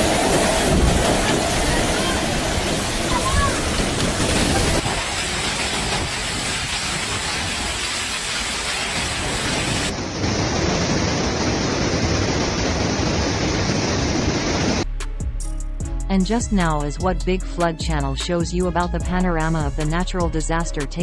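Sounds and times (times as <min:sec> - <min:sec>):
flash flood torrent rushing: 0:00.0 - 0:14.8
heavy rain pouring: 0:00.0 - 0:14.8.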